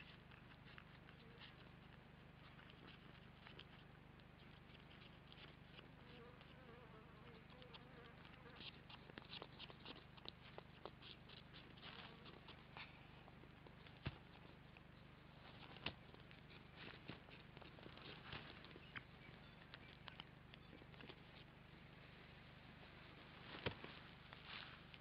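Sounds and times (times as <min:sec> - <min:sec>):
steady low hum: 0:00.0 - 0:25.0
rustling of dry nest litter: 0:07.3 - 0:14.7, 0:15.3 - 0:19.4.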